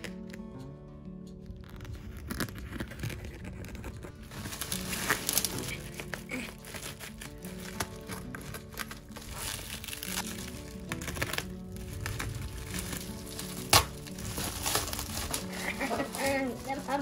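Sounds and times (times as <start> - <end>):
background music: 0.0 - 17.0
bubble wrap crinkling: 0.0 - 17.0.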